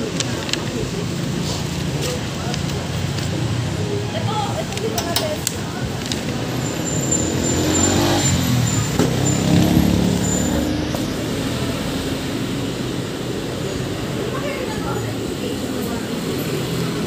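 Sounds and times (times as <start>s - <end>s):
low traffic rumble: 0.0s - 17.0s
vehicle engine rumbling past: 6.3s - 14.2s.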